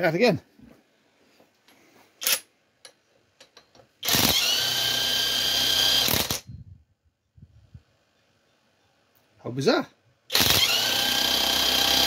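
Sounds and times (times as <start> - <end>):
drill spinning alternator whine: 4.0 - 6.4, 10.3 - 12.0.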